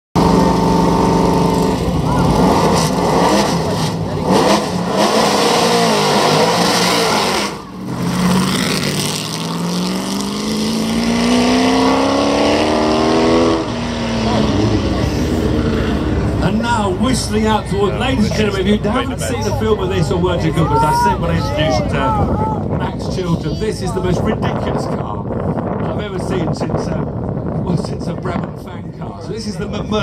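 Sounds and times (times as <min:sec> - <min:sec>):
race car engine revving: 0:00.2 - 0:20.4.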